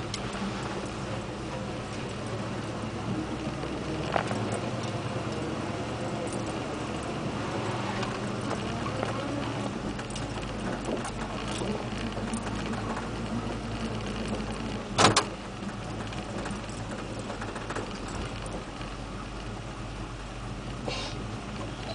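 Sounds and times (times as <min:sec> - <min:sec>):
cab rattles and clicks: 0:00.0 - 0:19.6
truck engine running: 0:00.0 - 0:21.9.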